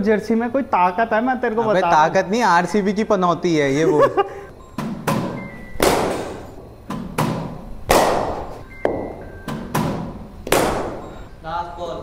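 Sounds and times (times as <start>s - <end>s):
heavy thuds with echo: 5.0s - 11.2s.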